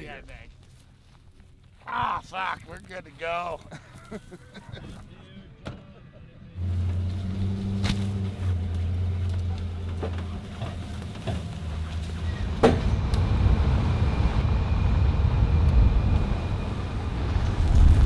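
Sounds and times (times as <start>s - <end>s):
road rumble: 0.0s - 18.0s
truck engine hum: 6.4s - 18.0s.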